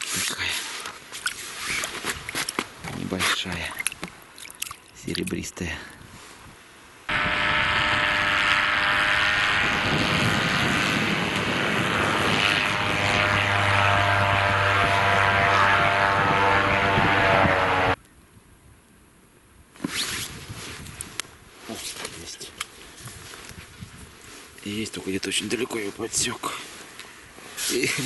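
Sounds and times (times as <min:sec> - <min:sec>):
airboat engine and propeller drone: 0:07.1 - 0:18.0.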